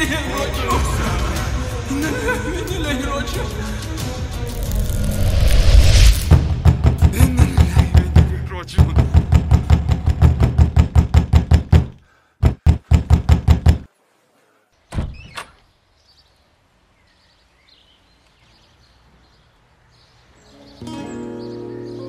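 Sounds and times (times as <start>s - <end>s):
knocking on wooden door: 6.6s - 13.9s
door opening thud: 14.9s - 15.6s.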